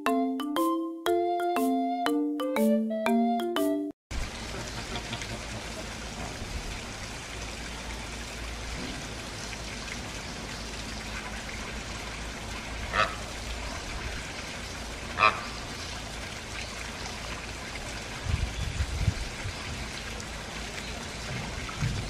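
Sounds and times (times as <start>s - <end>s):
xylophone-like music: 0.0s - 4.0s
running water hiss: 4.1s - 22.0s
flamingo honk: 12.9s - 13.3s, 15.2s - 15.6s.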